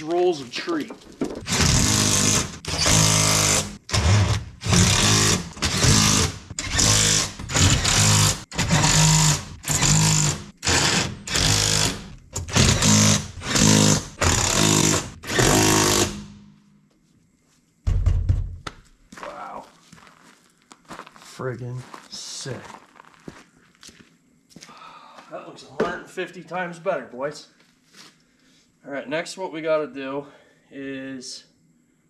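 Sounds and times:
power driver bursts: 1.5s - 16.3s.

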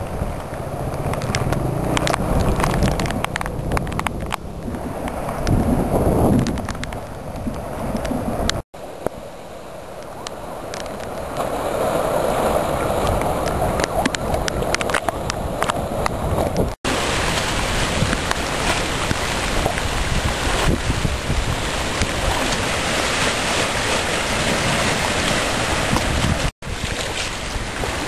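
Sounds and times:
floodwater rushing and gurgling: 0.0s - 28.0s
gusty wind buffeting microphone: 0.0s - 28.0s
small splashes and ticks: 0.3s - 4.4s.

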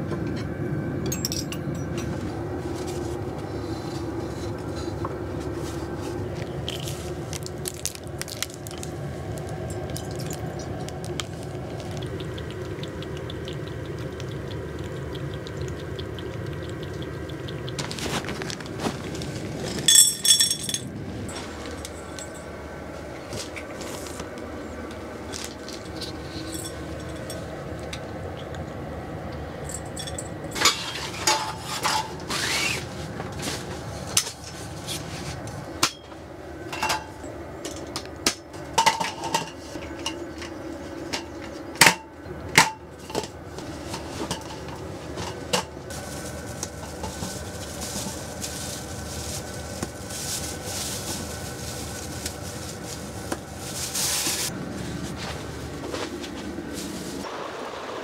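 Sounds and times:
plastic bin liner rustling: 43.6s - 57.3s.

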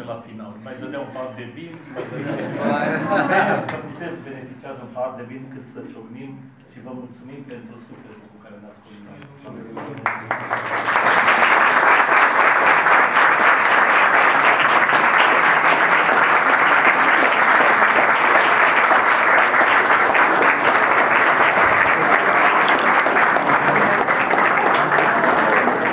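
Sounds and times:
audience applauding: 10.0s - 25.9s.

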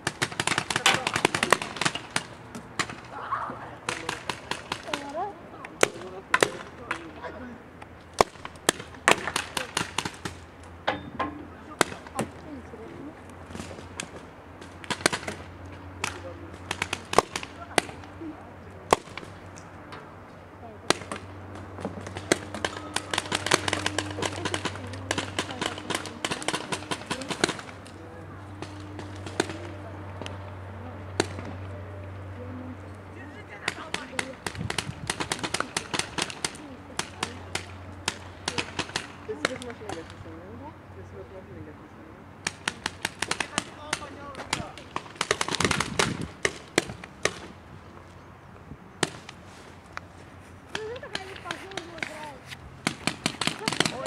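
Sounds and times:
paintball markers firing: 0.0s - 3.1s, 3.8s - 7.1s, 8.2s - 10.4s, 11.8s - 12.4s, 13.5s - 18.2s, 18.9s - 19.6s, 20.9s - 28.0s, 28.6s - 30.4s, 31.2s - 31.7s, 33.6s - 40.2s, 42.4s - 47.6s, 49.0s - 49.4s, 50.7s - 54.0s
paintball markers popping: 20.9s - 27.7s, 42.4s - 47.5s.

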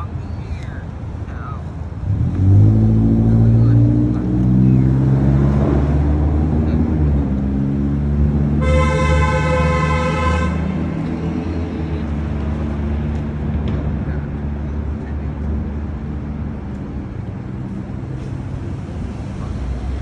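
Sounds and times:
street traffic rumble: 0.0s - 20.0s
vehicle horn: 8.6s - 10.9s.

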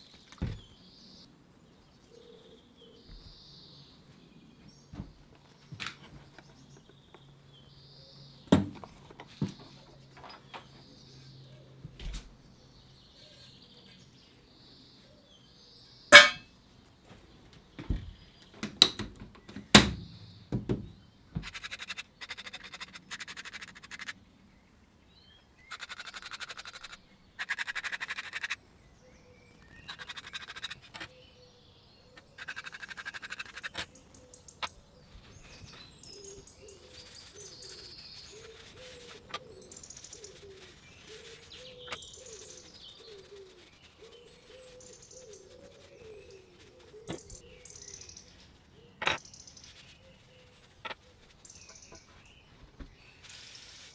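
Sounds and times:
faint squeaks and chirps: 8.8s - 14.4s, 25.2s - 53.9s.

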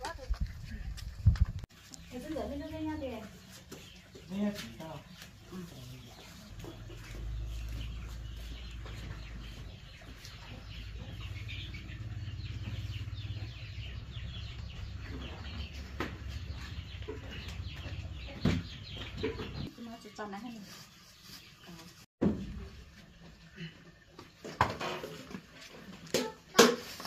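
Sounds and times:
chickens clucking: 2.3s - 19.7s.

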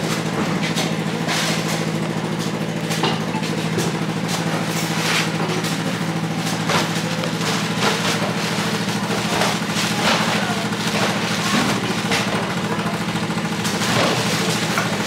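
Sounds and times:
engine-like hum: 0.0s - 15.0s
knife chopping coconuts: 2.7s - 12.6s.

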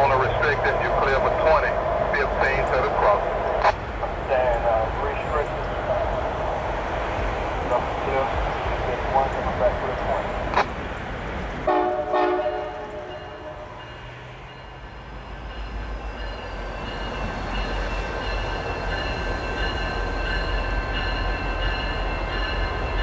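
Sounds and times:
diesel locomotive rumble: 0.0s - 23.0s
locomotive horn blasts: 11.7s - 13.8s.

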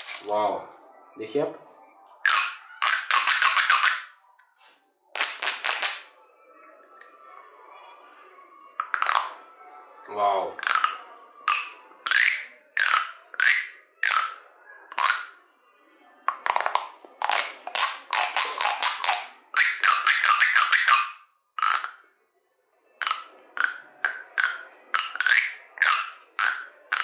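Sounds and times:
pop tube toy popping: 2.2s - 4.1s, 5.2s - 6.0s, 8.8s - 9.4s, 10.6s - 15.4s, 16.3s - 22.0s, 23.0s - 27.0s.

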